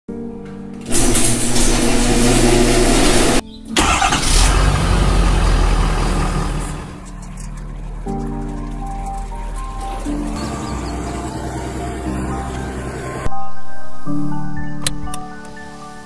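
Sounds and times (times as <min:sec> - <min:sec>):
music: 0:00.1 - 0:05.0, 0:06.4 - 0:16.0
truck engine revving: 0:00.8 - 0:13.3.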